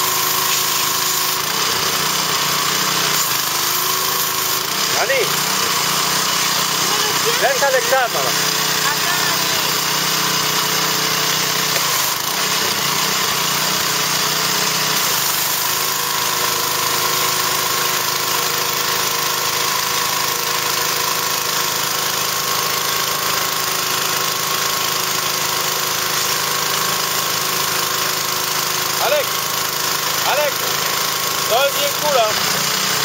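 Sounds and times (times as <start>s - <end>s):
spray hissing: 0.0s - 1.4s
pressure washer running: 0.0s - 33.0s.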